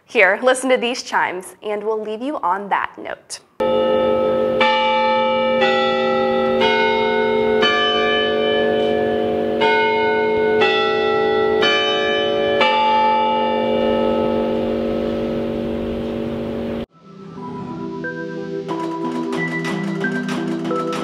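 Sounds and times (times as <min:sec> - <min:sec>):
tower chime bells playing a tune: 0:03.6 - 0:16.9.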